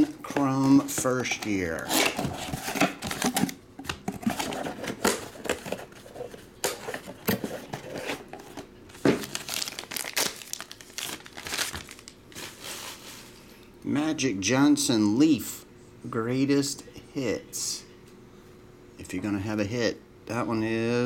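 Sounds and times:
packaging crinkling and rustling: 0:00.0 - 0:13.4.

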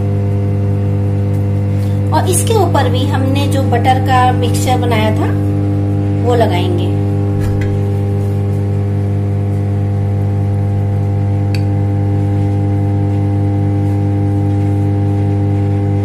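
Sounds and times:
loud electrical hum: 0:00.0 - 0:16.0
small click: 0:11.5 - 0:11.8.

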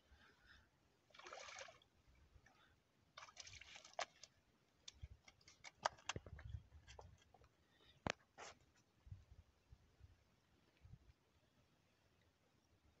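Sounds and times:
fish splashing in shallow water: 0:01.1 - 0:01.9, 0:03.1 - 0:04.5.

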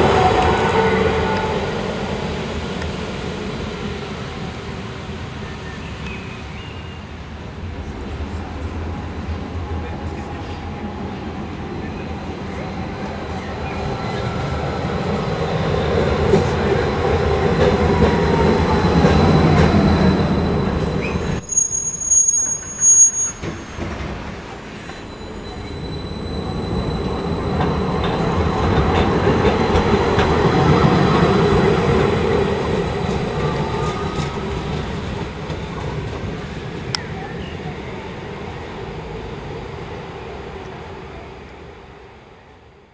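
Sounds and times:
tram wheel rumble: 0:00.0 - 0:42.4
wheel squeal: 0:18.8 - 0:24.1.

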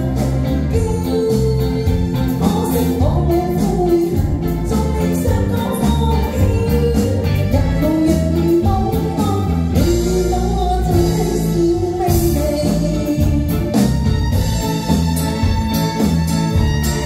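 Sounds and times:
woman singing into a microphone: 0:00.0 - 0:14.0
live band playing: 0:00.0 - 0:17.0.

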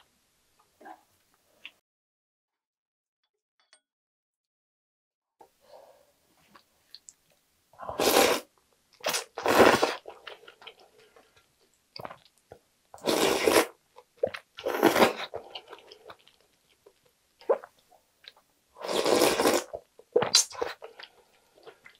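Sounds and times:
quiet chewing and mouth clicks: 0:06.5 - 0:07.4, 0:15.4 - 0:18.5
loud noodle slurping: 0:07.9 - 0:08.5, 0:09.1 - 0:10.0, 0:13.0 - 0:13.7, 0:14.6 - 0:15.3, 0:18.8 - 0:19.7.

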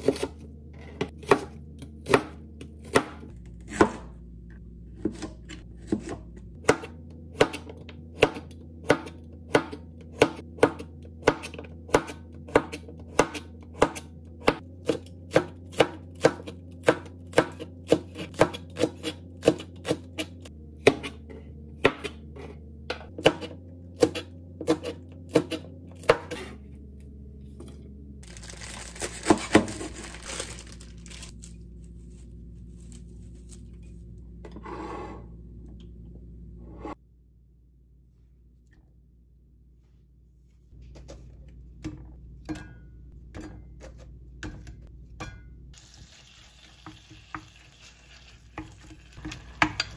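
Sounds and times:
knife chopping on cutting board: 0:01.1 - 0:04.1, 0:05.0 - 0:21.2
plastic wrapper crinkling: 0:28.2 - 0:32.2.

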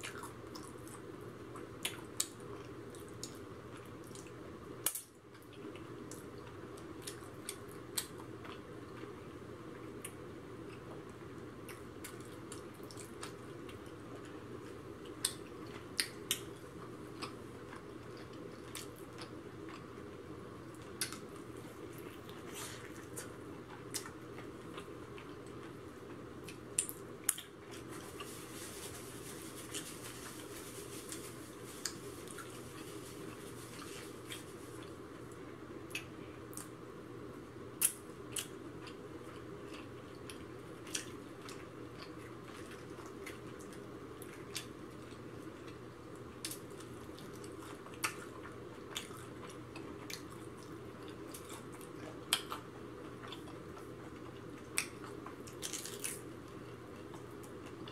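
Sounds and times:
steady low hum: 0:00.0 - 0:57.9
chewing and mouth smacks: 0:20.7 - 0:25.8, 0:46.4 - 0:57.9.

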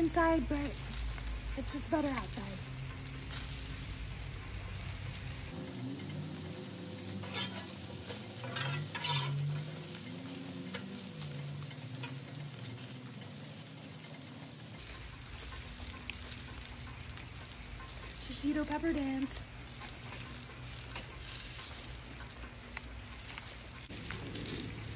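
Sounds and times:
peppers sizzling in oil: 0:00.0 - 0:24.9
metal spatula scraping griddle: 0:07.1 - 0:13.7, 0:19.6 - 0:24.9.

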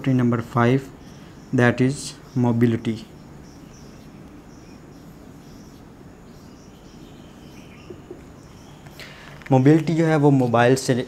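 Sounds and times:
room hiss: 0:00.0 - 0:11.0
marker squeaking on whiteboard: 0:05.0 - 0:06.8.

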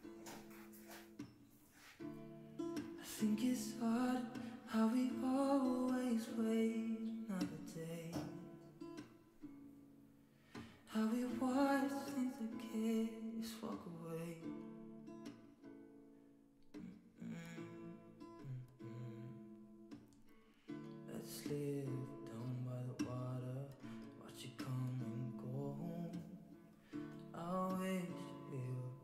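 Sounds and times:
acoustic guitar strumming: 0:00.0 - 0:29.0
person singing: 0:02.9 - 0:08.6, 0:10.9 - 0:14.6, 0:16.8 - 0:19.6, 0:21.0 - 0:26.4, 0:27.2 - 0:29.0.

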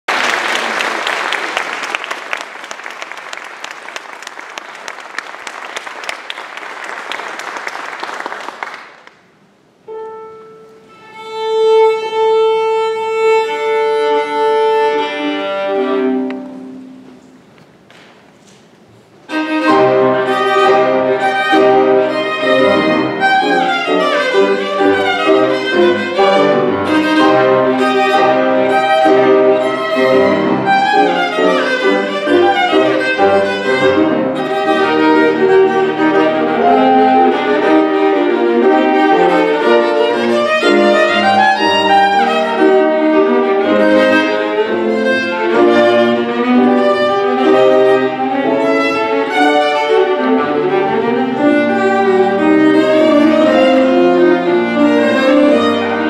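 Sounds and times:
audience applauding: 0:00.0 - 0:09.4
viola and piano concerto: 0:00.1 - 0:56.0
viola tuning: 0:19.2 - 0:56.0.

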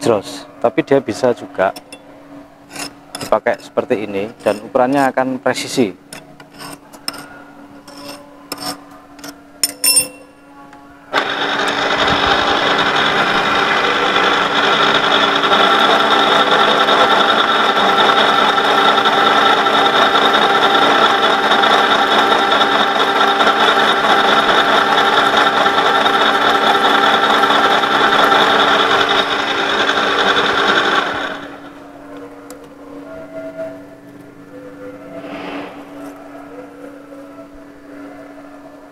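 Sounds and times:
end mill cutting steel: 0:11.1 - 0:31.8.

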